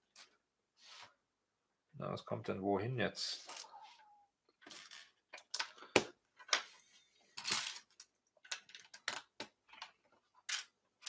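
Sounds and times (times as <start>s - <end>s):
plastic bricks clicking and rattling: 7.4s - 10.7s.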